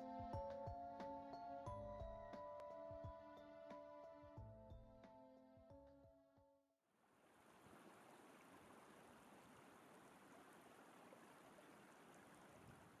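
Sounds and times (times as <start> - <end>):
faint music: 0.0 - 6.2
faint steady water rush: 7.0 - 13.0.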